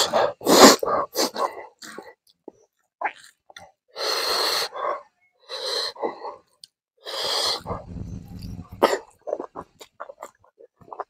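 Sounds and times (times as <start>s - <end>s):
wet chewing clicks: 0.6s - 3.8s, 8.3s - 11.0s
low rumble: 7.6s - 9.0s.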